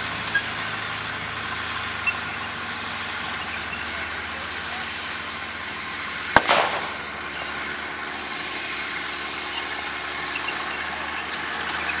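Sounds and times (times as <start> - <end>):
tractor engine running: 0.0 - 12.0
sharp crack: 6.3 - 7.6.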